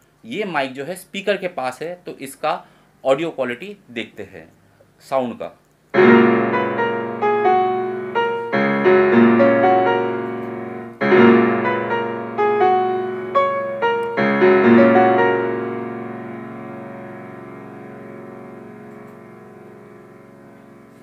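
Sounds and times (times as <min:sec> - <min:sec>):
digital piano melody with chords: 0:05.9 - 0:21.0.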